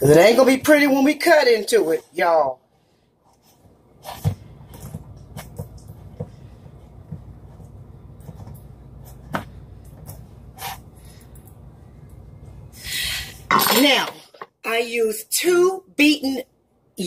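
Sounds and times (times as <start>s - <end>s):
steady low hum: 2.6s - 13.5s.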